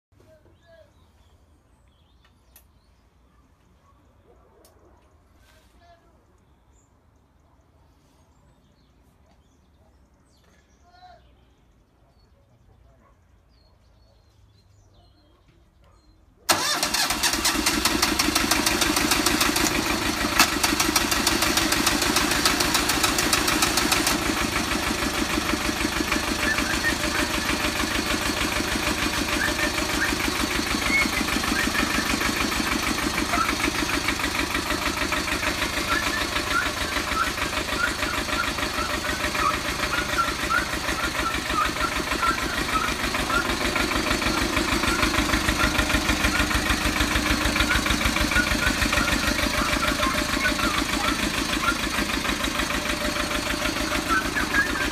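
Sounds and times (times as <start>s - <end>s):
small tractor engine starting and running: 16.5s - 54.9s.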